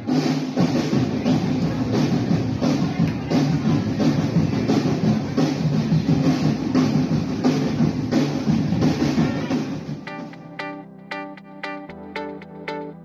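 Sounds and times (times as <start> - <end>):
drumming troupe playing: 0.0 - 11.9
background music of plucked notes: 10.1 - 13.0.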